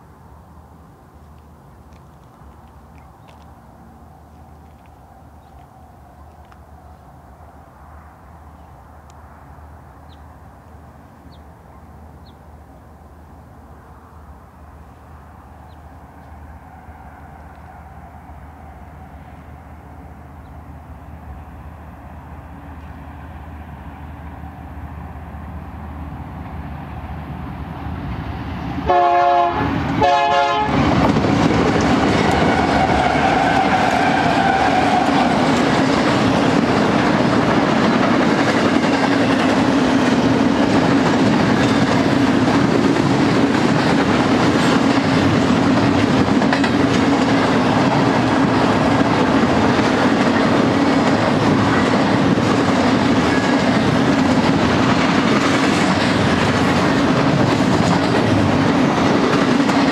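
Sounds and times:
freight train passing: 0.0 - 59.9
rumble and clatter of rail cars: 0.0 - 59.9
train horn blasts: 28.8 - 30.9.

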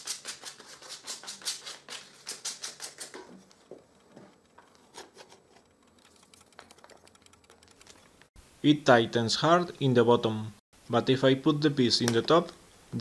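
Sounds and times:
sandpaper strokes on wood: 0.0 - 3.2.

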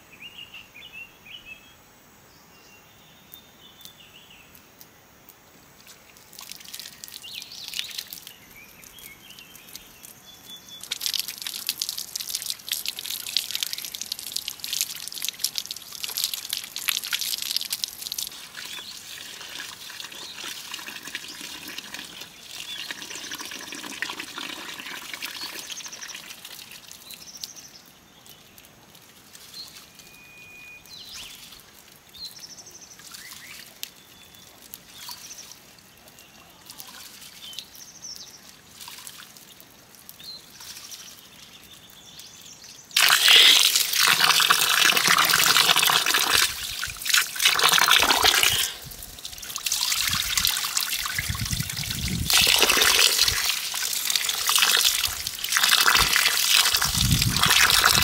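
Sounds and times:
faint bird chirps: 6.1 - 11.4, 27.0 - 38.4
water splashing into plastic bowl: 43.0 - 58.0.

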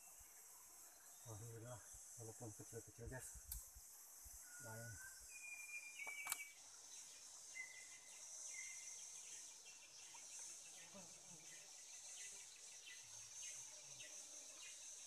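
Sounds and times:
insects droning: 0.0 - 15.0
whistled bird notes: 4.4 - 6.6.

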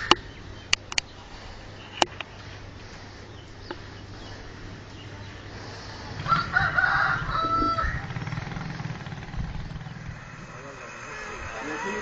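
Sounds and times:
low background rumble: 0.0 - 11.6
rooster crowing: 6.2 - 8.4.

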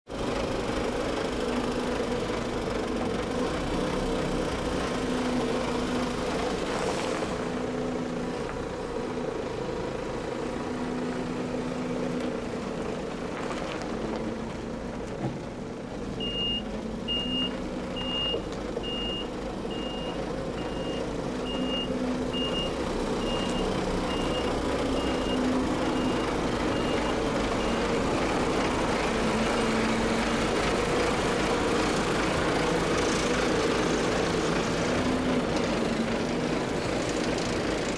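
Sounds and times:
diesel truck engine running: 0.1 - 37.9
truck reversing alarm beeping: 16.2 - 30.4.

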